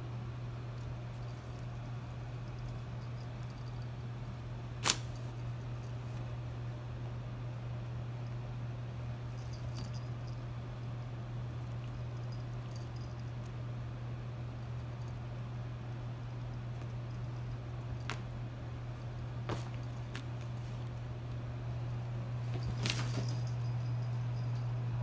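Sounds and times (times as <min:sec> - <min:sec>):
steady low hum: 0:00.0 - 0:25.0
kittens pawing at paper: 0:19.4 - 0:21.4, 0:22.4 - 0:23.5.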